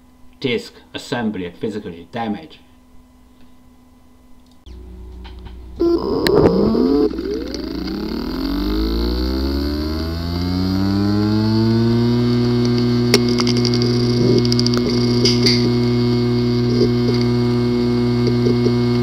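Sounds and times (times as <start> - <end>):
hard drive motor whine: 4.7 - 19.0
irregular noise burst: 5.6 - 17.5.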